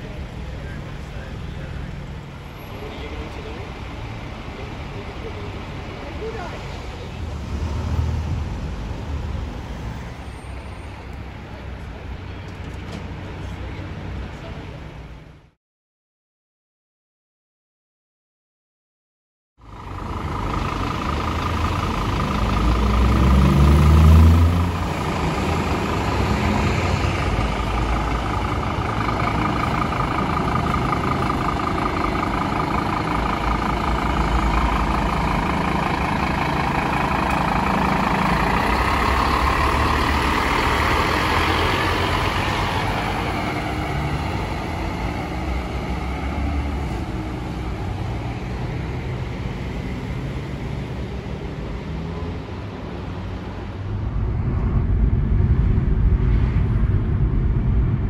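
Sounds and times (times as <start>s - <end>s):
engine and tyre noise: 0.0s - 15.6s, 19.6s - 58.0s
vehicle accelerating: 19.6s - 58.0s.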